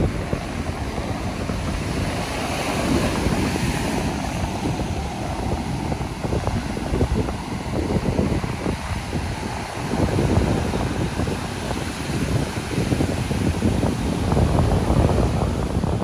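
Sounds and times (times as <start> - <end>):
ocean surf breaking: 0.0 - 16.0
wind rumble on microphone: 0.0 - 16.0.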